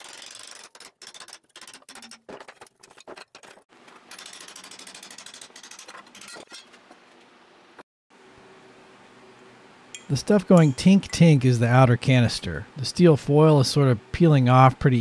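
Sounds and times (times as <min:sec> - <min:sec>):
rapid clicking of bent metal sheet: 0:00.0 - 0:06.7.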